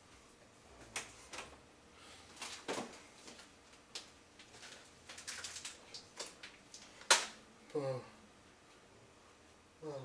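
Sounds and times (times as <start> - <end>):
items knocking and rattling: 2.4 - 7.3.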